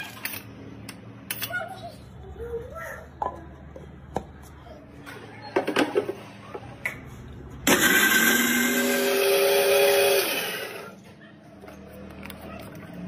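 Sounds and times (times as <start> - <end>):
mixer-grinder motor whining: 7.6 - 11.0.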